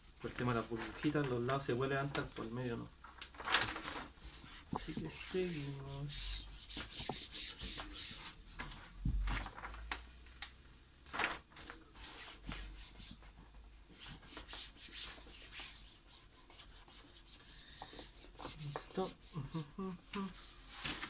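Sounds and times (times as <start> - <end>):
vinyl sheet rustling: 0.1 - 21.0
palm swishing over vinyl film: 0.2 - 10.2, 11.2 - 21.0.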